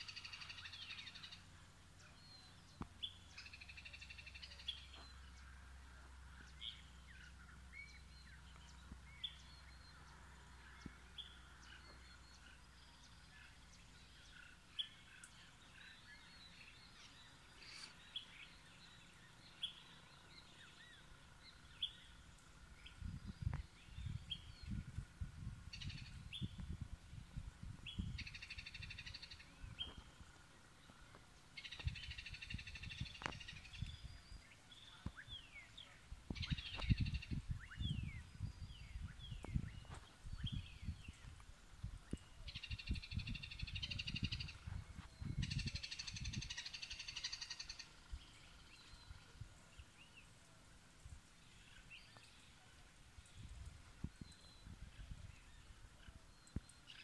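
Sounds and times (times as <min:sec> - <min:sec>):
birds chirping and calling: 0:25.7 - 0:50.3
buzzy chattering bird calls: 0:45.4 - 0:48.4.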